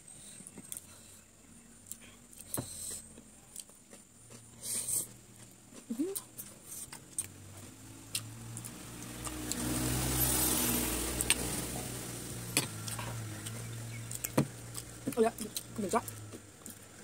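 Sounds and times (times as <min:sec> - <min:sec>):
vehicle engine passing by: 0:06.8 - 0:16.5.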